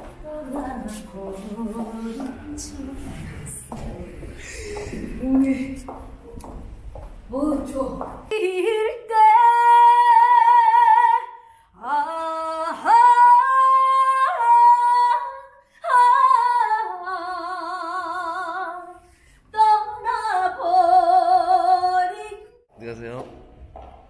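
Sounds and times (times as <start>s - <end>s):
woman singing unaccompanied: 0.0s - 4.3s, 7.3s - 18.9s, 19.5s - 22.6s.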